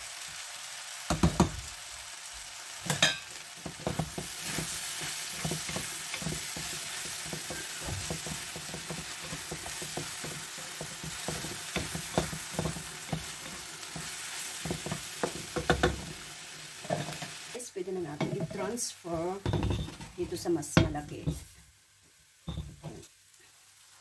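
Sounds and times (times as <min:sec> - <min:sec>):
food sizzling in hot oil: 0:00.0 - 0:24.0
wooden spatula scraping a pan: 0:03.6 - 0:17.5.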